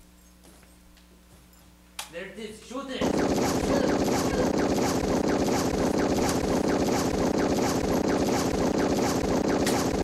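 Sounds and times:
rapid gunfire: 3.0s - 10.0s
steady rumble: 3.0s - 10.0s.

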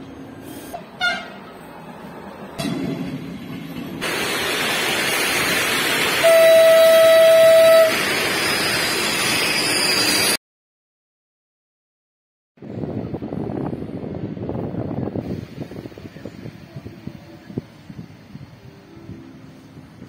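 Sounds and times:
electric locomotive approaching: 0.0s - 10.4s, 12.6s - 20.0s
train horn blast: 1.0s - 1.4s, 6.2s - 8.0s.

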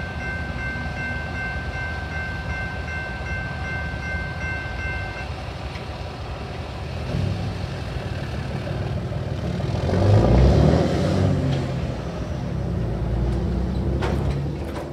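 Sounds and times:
pickup truck accelerating: 7.1s - 14.6s.

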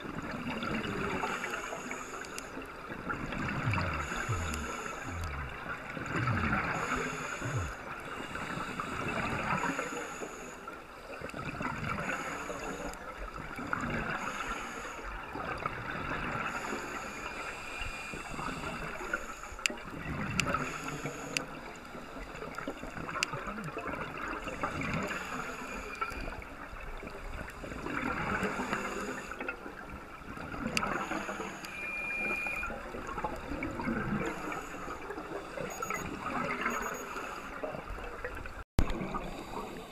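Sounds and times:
exhaled bubbles gurgling: 0.0s - 39.9s
hissing breaths through regulator: 1.2s - 2.8s, 3.5s - 5.7s, 6.4s - 10.7s, 12.0s - 13.0s, 14.1s - 15.2s, 16.4s - 19.8s, 20.4s - 22.3s, 24.4s - 26.4s, 27.6s - 29.4s, 30.7s - 32.8s, 34.1s - 37.6s.

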